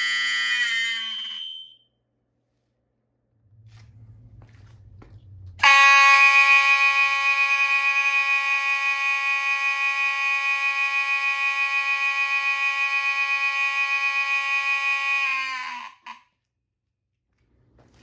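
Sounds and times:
fire alarm buzzing: 0.0s - 2.0s, 5.6s - 16.0s.

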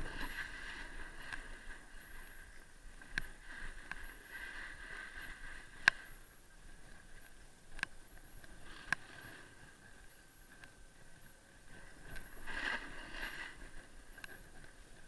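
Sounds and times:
skis scraping over snow: 0.0s - 6.2s, 11.7s - 15.0s.

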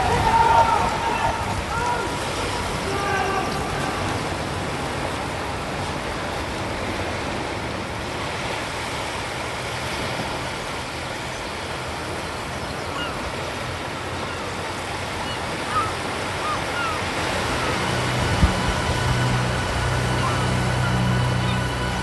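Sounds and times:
small waves breaking on beach: 0.0s - 22.0s.

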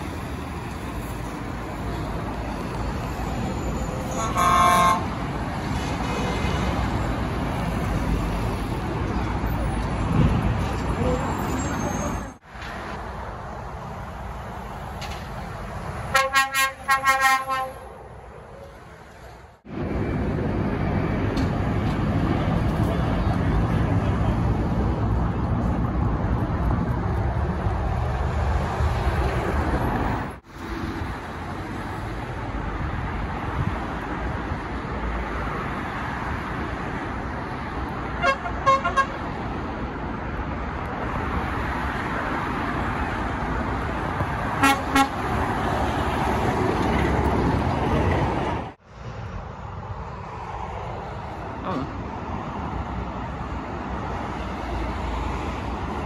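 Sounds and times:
lorries driving past: 0.0s - 56.0s
horn toots: 4.0s - 5.1s, 16.1s - 17.9s, 38.2s - 39.2s, 44.6s - 45.3s.

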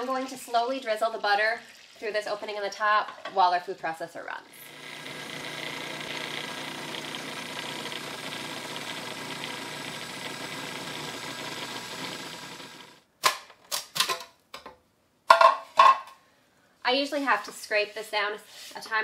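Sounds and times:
food processor running: 4.5s - 13.0s.

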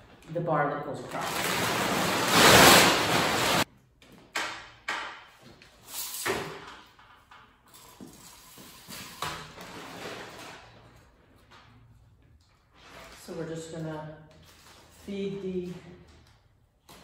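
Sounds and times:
plastic tarp rustling: 1.0s - 3.7s.

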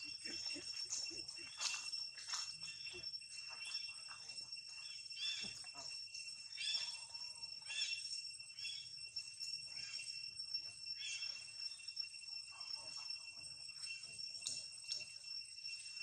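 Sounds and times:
high-pitched insect drone: 0.0s - 16.0s
short chirping calls: 6.5s - 8.9s.

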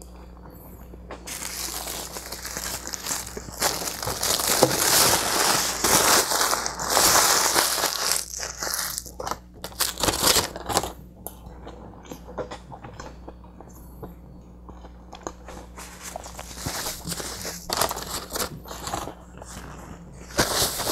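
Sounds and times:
aluminium foil being crumpled: 1.3s - 11.0s, 15.8s - 19.2s, 20.2s - 20.9s.

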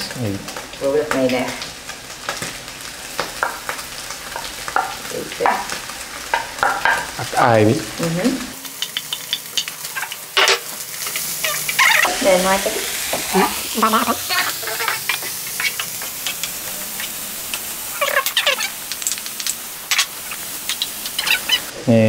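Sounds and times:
vegetables sizzling in a frying pan: 0.0s - 22.0s
utensil scraping against pan: 13.9s - 17.2s.

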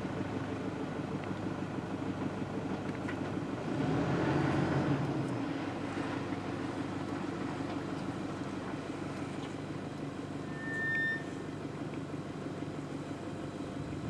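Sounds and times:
vehicle engine idling: 0.0s - 14.0s
short high whistle: 10.4s - 11.4s.

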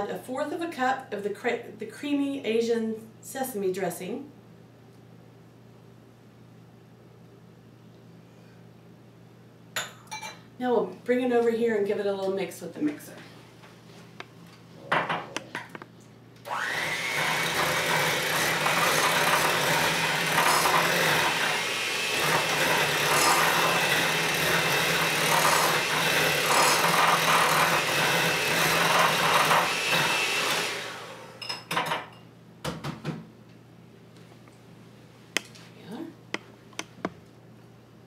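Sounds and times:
electric hand mixer motor: 16.5s - 31.4s.

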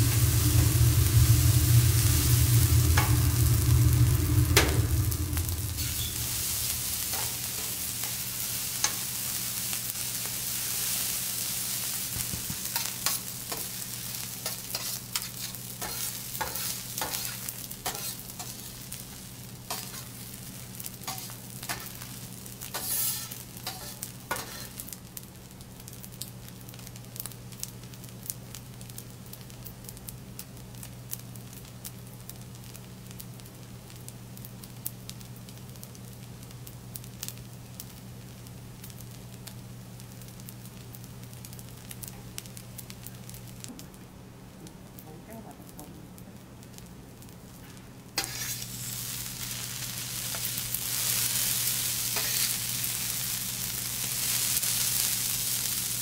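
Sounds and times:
steady low hum: 0.0s - 24.8s
rice sizzling on a griddle: 0.0s - 56.0s
metal spatulas tapping and scraping: 14.5s - 17.3s, 22.7s - 24.7s.

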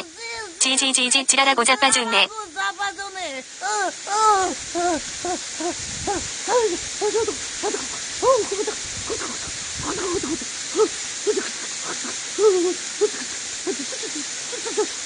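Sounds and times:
woman shivering whimpers: 3.6s - 15.0s.

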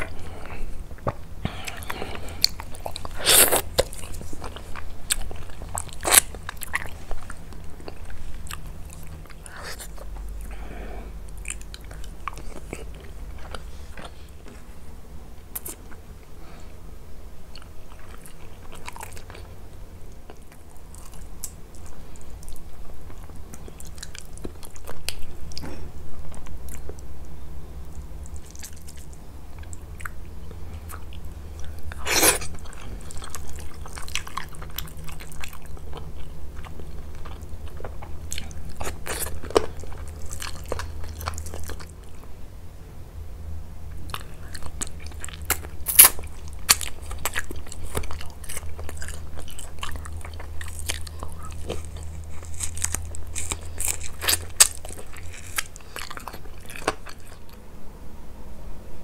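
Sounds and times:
chewing and biting: 0.0s - 10.6s, 11.3s - 14.7s, 17.5s - 19.6s, 27.9s - 42.2s, 44.0s - 57.6s.

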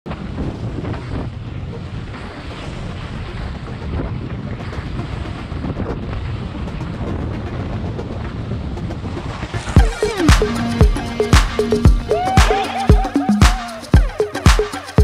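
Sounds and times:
wind buffeting microphone: 0.1s - 9.9s.

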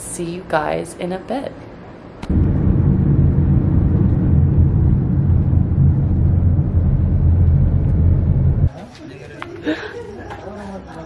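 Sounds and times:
car engine and road noise: 3.8s - 8.7s.

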